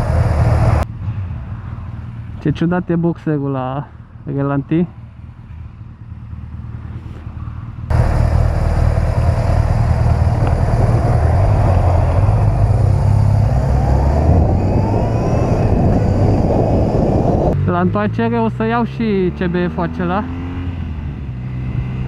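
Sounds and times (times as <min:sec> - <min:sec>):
wind buffeting: 0:00.0 - 0:00.8, 0:07.9 - 0:17.6
motorcycle engine rumble: 0:00.0 - 0:02.4, 0:05.0 - 0:18.3.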